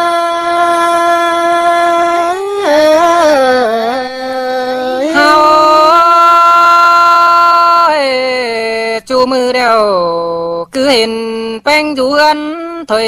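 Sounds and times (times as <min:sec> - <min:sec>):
person singing unaccompanied: 0:00.0 - 0:13.0.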